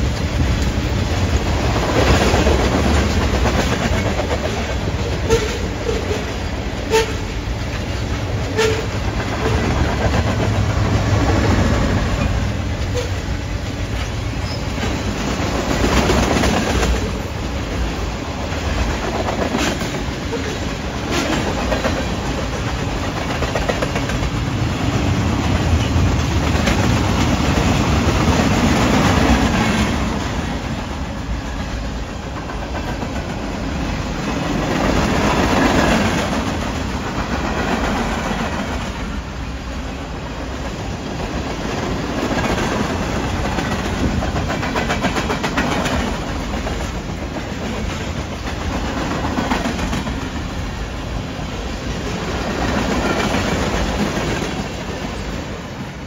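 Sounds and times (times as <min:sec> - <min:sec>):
wheels clicking over rail joints: 0:00.0 - 0:55.4
freight train rumbling past: 0:00.0 - 0:56.0.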